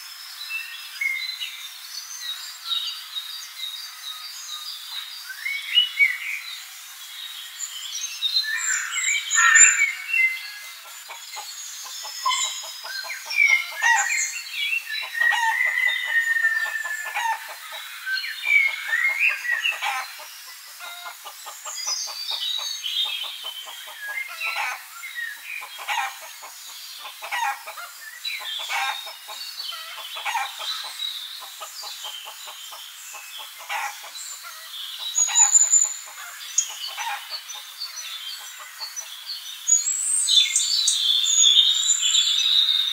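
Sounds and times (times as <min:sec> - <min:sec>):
hens clucking: 0:25.6 - 0:27.9, 0:30.0 - 0:31.8, 0:33.6 - 0:34.2.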